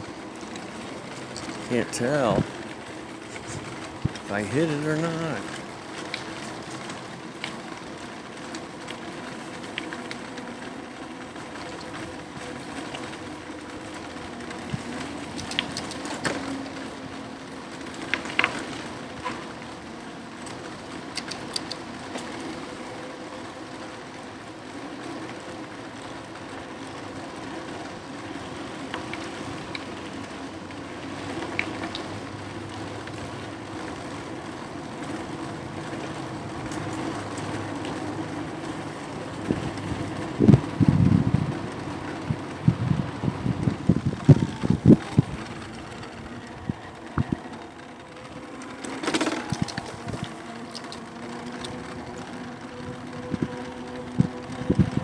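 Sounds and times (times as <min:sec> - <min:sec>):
electric bike motor hum: 0:00.0 - 0:55.0
road noise: 0:00.0 - 0:55.0
sharp clicks and rattles: 0:00.1 - 0:19.8, 0:20.4 - 0:22.4, 0:35.0 - 0:55.0.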